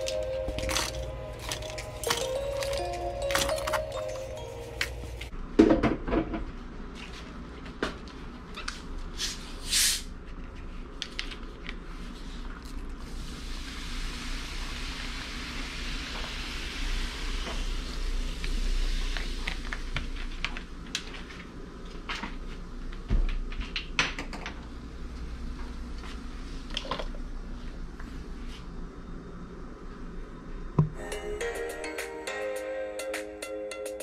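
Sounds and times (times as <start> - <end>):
soda pouring with hiss: 13.0 - 19.9.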